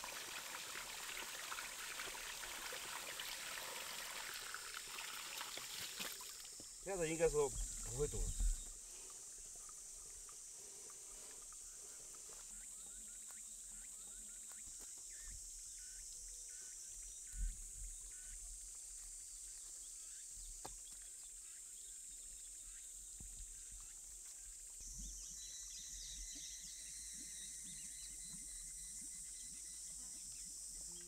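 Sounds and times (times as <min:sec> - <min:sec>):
insects droning: 0:00.0 - 0:31.0
faint chirps: 0:05.4 - 0:18.4.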